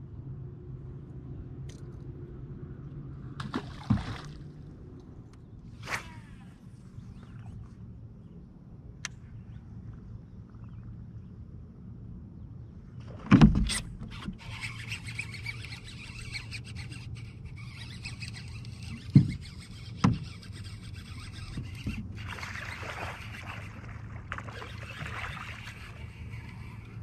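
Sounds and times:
fish splashing in water: 22.1 - 26.6.

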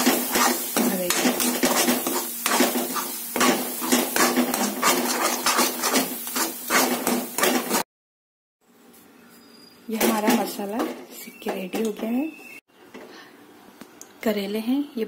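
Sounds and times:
metal spoon scraping a pan: 0.0 - 7.8.

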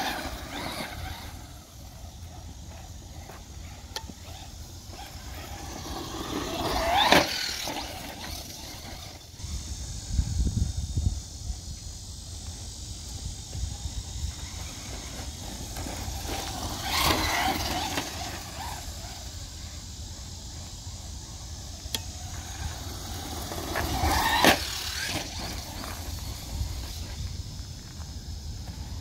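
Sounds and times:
electric motor whining: 0.0 - 9.7, 14.2 - 19.7, 21.8 - 27.4.

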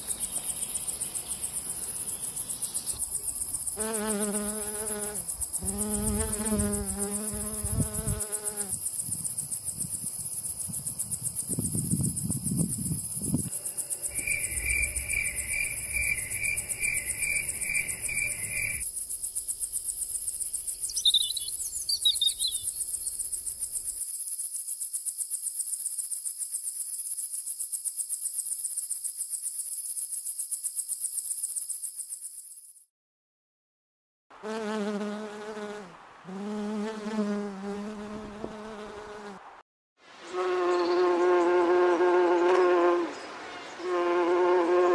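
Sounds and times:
high fast-pulsing insect trill: 0.0 - 32.8
insect chirps: 0.0 - 32.9, 40.2 - 44.9
bumblebee buzzing: 2.8 - 8.8, 12.8 - 18.8, 34.4 - 39.4, 40.3 - 43.1, 43.8 - 44.9.

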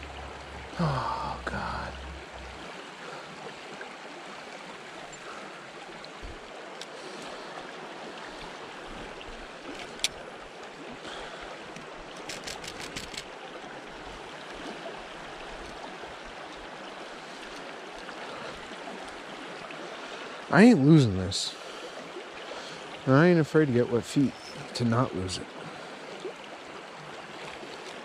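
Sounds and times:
creek running over rocks: 0.0 - 28.0
quick ticks: 12.2 - 13.2.

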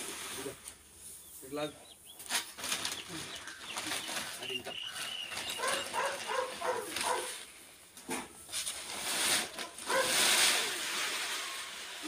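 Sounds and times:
dog barking: 5.6 - 7.4, 9.9 - 10.2
granules scraped across floor: 8.5 - 12.0.

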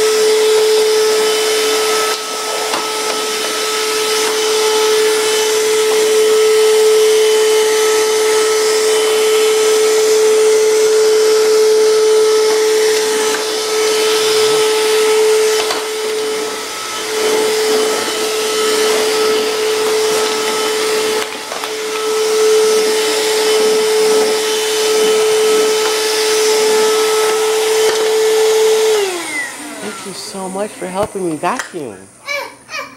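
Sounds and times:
vacuum cleaner motor whine: 0.0 - 32.8.

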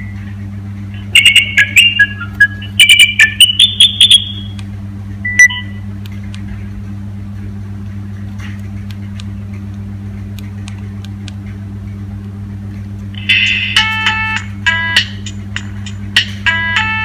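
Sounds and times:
steady low hum: 0.0 - 17.0
phone ringtone: 1.1 - 4.5, 13.2 - 15.2, 16.5 - 17.0.

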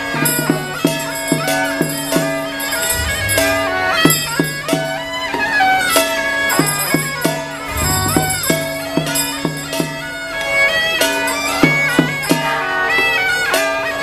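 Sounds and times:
double-reed shawm melody: 0.0 - 14.0
low held notes: 2.8 - 4.4, 7.6 - 9.0.

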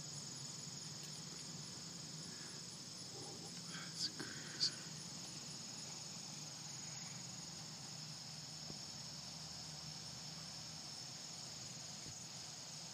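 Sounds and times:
faint low hum: 0.0 - 12.9
night insects trilling: 0.0 - 12.9.

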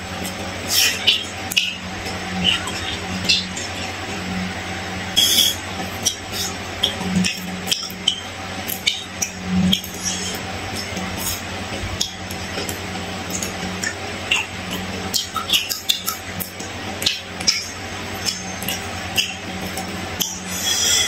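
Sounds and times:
steady low hum: 0.0 - 21.0
mouth clicks and smacks: 5.2 - 21.0.

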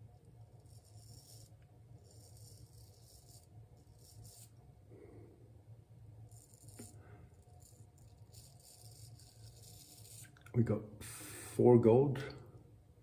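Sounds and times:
straight razor scraping stubble: 6.3 - 7.0.

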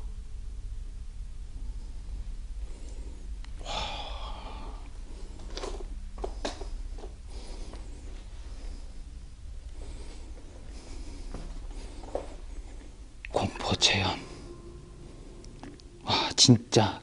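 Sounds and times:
steady low hum: 0.0 - 17.0
man gasping: 3.6 - 4.9.

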